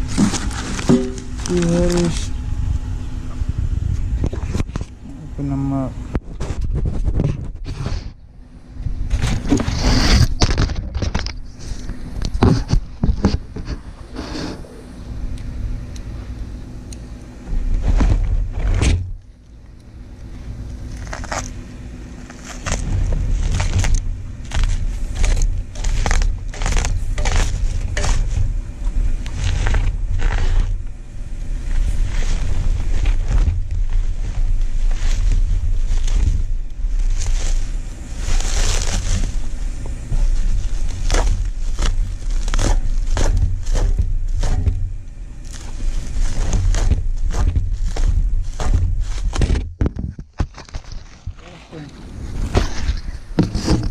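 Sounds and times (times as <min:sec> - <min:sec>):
packing paper and bubble wrap crinkling: 0:00.0 - 0:02.4, 0:20.8 - 0:21.6, 0:22.2 - 0:30.9, 0:31.5 - 0:53.9
steady low rumble: 0:00.0 - 0:53.9.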